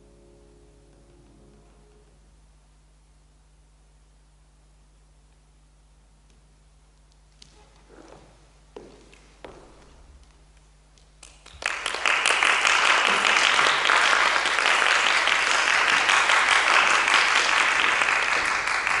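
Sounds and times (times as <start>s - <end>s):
audience applauding: 11.2s - 19.0s.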